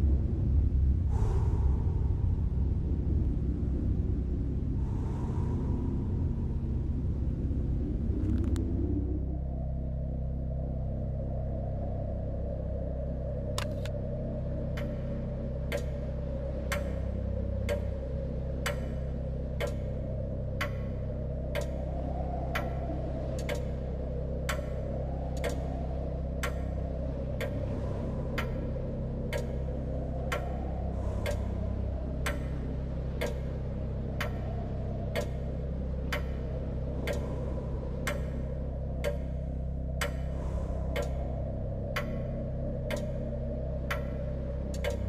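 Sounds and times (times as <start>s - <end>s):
low sustained drone: 0.0s - 45.0s.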